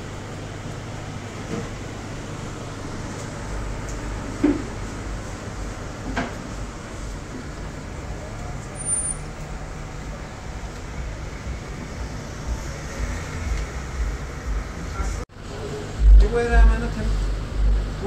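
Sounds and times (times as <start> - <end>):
car engines running: 0.0 - 18.0
cars driving past: 1.4 - 15.2.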